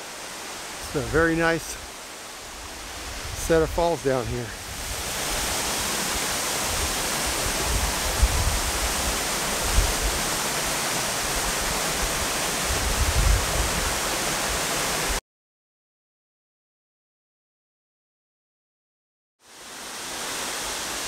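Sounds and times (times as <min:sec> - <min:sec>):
waterfall rushing onto rocks: 0:00.0 - 0:15.2, 0:19.4 - 0:21.0.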